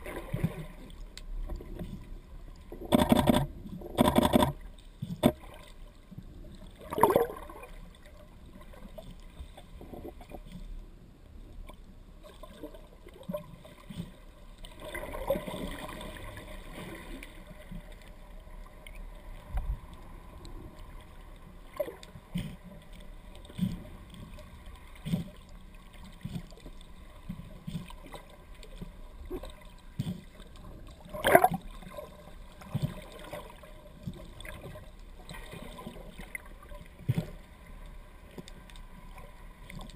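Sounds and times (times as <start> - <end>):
water sloshing: 20.8 - 39.9.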